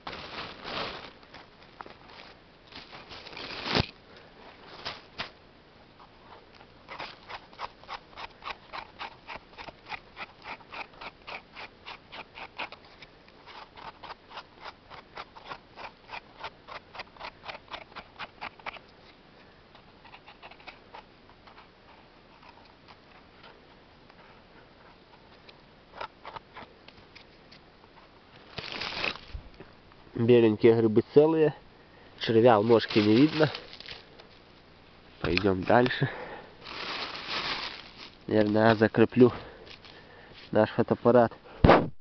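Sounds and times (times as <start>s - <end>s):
knife scraping mushroom stem: 6.0s - 19.2s, 19.8s - 23.3s, 32.5s - 34.2s.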